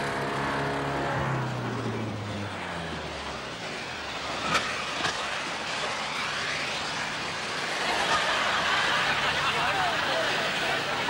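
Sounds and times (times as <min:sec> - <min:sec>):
rockets hissing on rolling wheel: 0:03.6 - 0:11.0.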